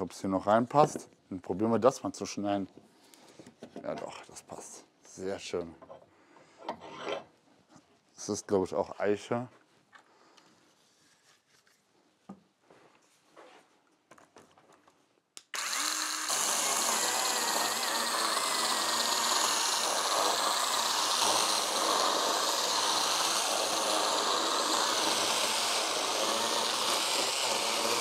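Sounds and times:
chainsaw cutting wood: 0:15.5 - 0:28.0.

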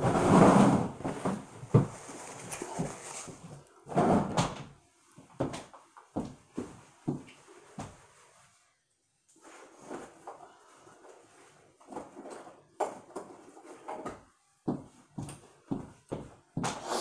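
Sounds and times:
knocks and clatter of moving about: 0:00.0 - 0:08.1, 0:09.7 - 0:16.8.

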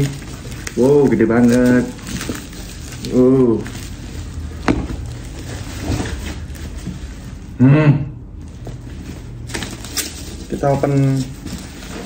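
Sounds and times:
parcel handling noises: 0:00.0 - 0:07.6, 0:08.4 - 0:12.0
man's short vocal sound: 0:07.6 - 0:08.2.

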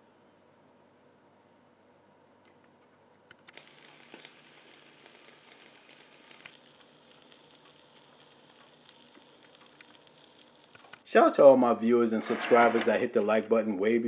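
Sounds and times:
small crackles and pops: 0:02.4 - 0:11.1
chicken sizzling on grill: 0:03.5 - 0:11.0.

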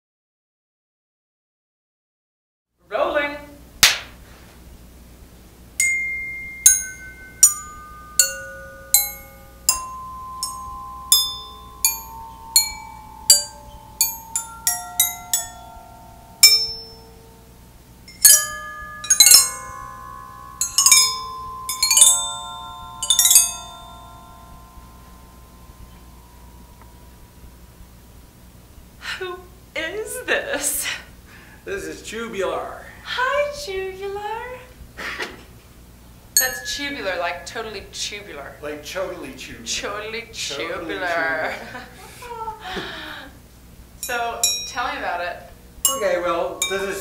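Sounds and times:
metal tubes struck ringing: 0:05.8 - 0:27.5, 0:36.4 - 0:37.8, 0:44.0 - 0:47.0.

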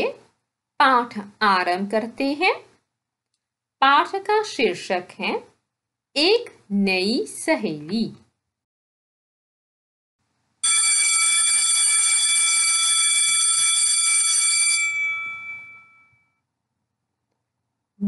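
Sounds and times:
handbell ringing: 0:14.8 - 0:16.2.

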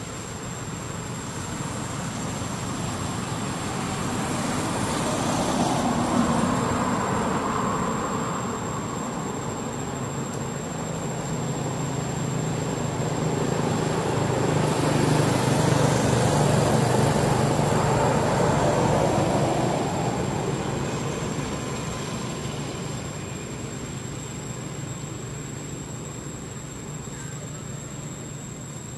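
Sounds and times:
vehicle driving past: 0:01.6 - 0:10.2, 0:10.8 - 0:23.1.

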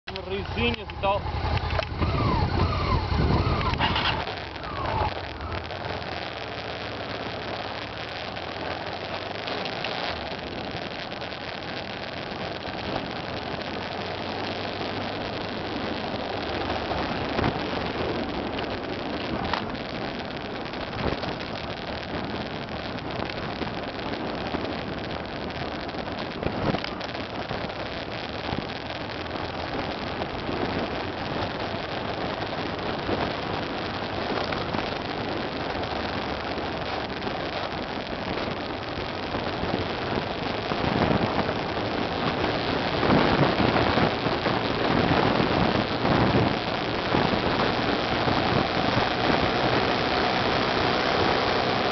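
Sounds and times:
motorcycle engine: 0:00.0 - 0:51.9
tyres on loose ground: 0:00.0 - 0:51.9
wind rushing over microphone: 0:00.0 - 0:51.9.

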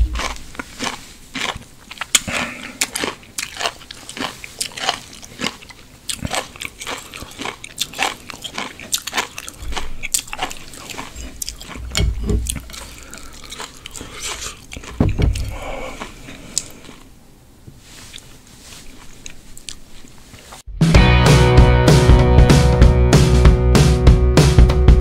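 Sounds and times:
wet chewing and mouth smacks: 0:00.0 - 0:17.1, 0:18.0 - 0:20.6
low thumps: 0:11.7 - 0:12.7, 0:14.9 - 0:15.6.

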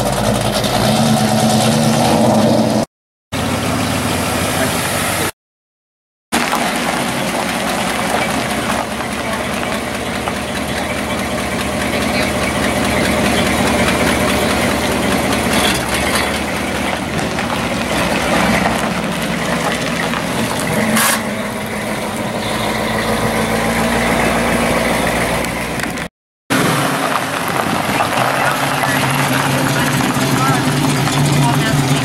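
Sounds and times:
car engine idling: 0:00.0 - 0:02.7, 0:06.4 - 0:32.0
car pulling away: 0:00.0 - 0:05.3, 0:06.4 - 0:32.0.

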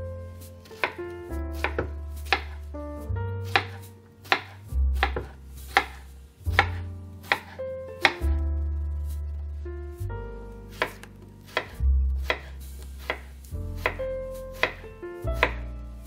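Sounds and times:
knife chopping on wooden board: 0:00.6 - 0:02.6, 0:03.4 - 0:08.3, 0:10.7 - 0:14.8, 0:15.4 - 0:15.6.

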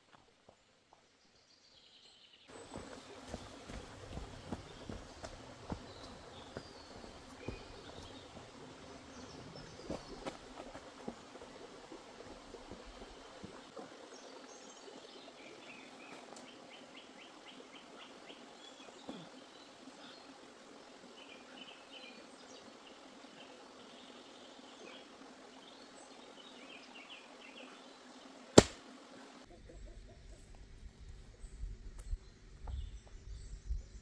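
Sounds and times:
small birds chirping: 0:00.5 - 0:10.9, 0:13.4 - 0:28.4
sharp loud click: 0:28.6 - 0:28.8.

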